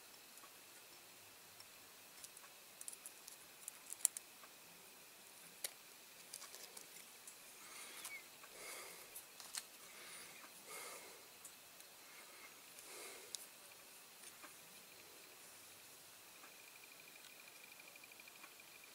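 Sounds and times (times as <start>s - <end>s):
soft handling rustle: 5.6s - 8.2s, 9.0s - 10.6s.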